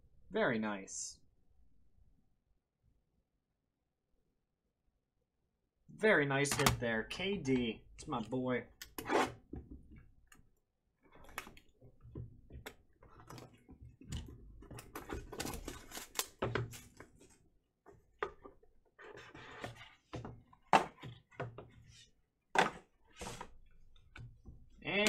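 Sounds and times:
cardboard and paper rustling: 13.1 - 23.9.

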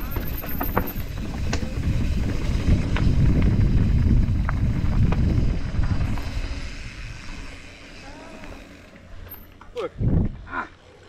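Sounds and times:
bike rattling clicks: 0.0 - 7.6
wind buffeting microphone: 0.0 - 7.6, 10.0 - 10.5
bike tyres on gravel: 0.0 - 11.0.

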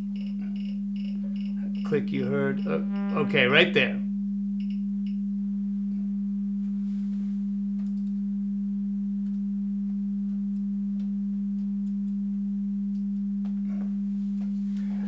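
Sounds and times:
sine test tone: 0.0 - 13.6
faint clicks: 7.8 - 8.2.

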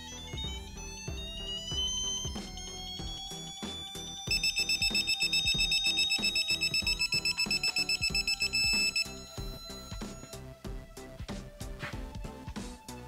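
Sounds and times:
fast electronic beeping: 0.0 - 10.3
background music: 0.0 - 13.0.

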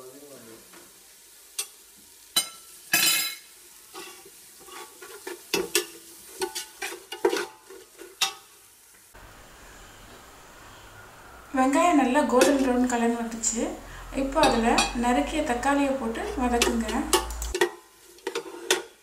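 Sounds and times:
onions sizzling: 0.0 - 19.0
metal spatula scraping a pot: 3.9 - 8.5, 16.1 - 19.0.

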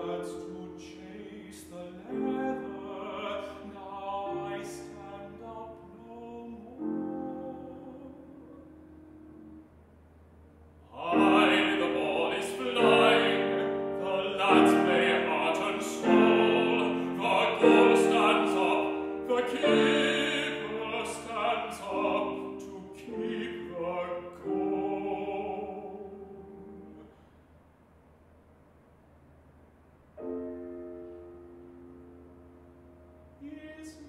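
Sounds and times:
man singing: 0.0 - 8.6, 10.9 - 27.0, 33.4 - 34.0
piano accompaniment: 0.0 - 27.2, 30.2 - 34.0.

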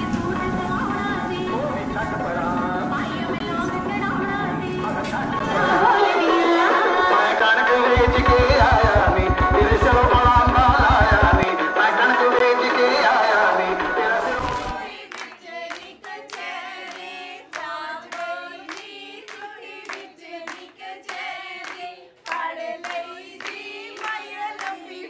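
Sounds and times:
recorded music track: 0.0 - 14.9
women singing together: 0.0 - 25.0
rhythmic handclaps: 15.0 - 25.0.

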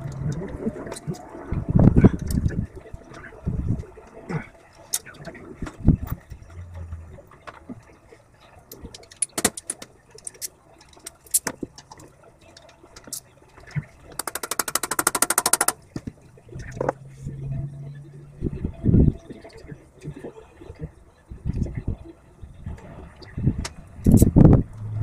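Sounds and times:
clicks and knocks of hand tools: 9.0 - 12.0, 14.1 - 16.1
fast run of clicks: 14.2 - 15.8.

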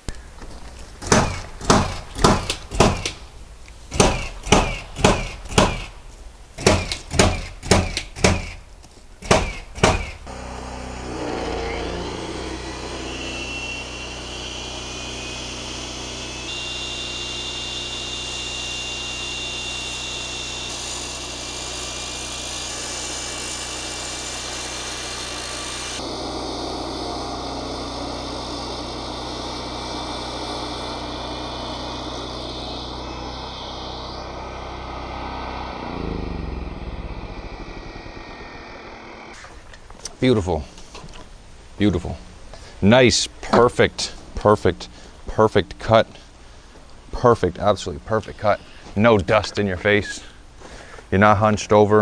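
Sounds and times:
masonry saw cutting concrete: 3.9 - 6.0, 9.2 - 40.6
motor and dust vacuum hum: 9.2 - 51.1.

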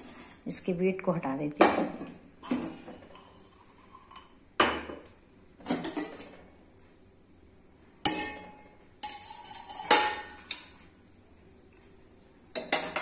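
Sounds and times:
metal kitchenware clanking: 1.6 - 6.4, 8.0 - 10.8, 12.5 - 13.0.

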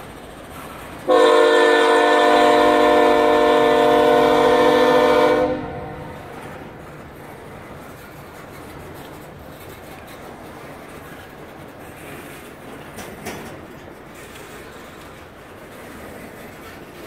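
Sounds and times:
train wheels rumbling on rail: 0.0 - 17.0
sharp clanks: 12.0 - 15.2.

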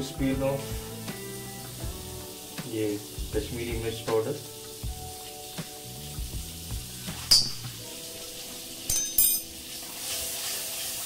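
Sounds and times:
butter sizzling: 0.0 - 11.0
spoon clinking on metal wok: 8.9 - 9.6.

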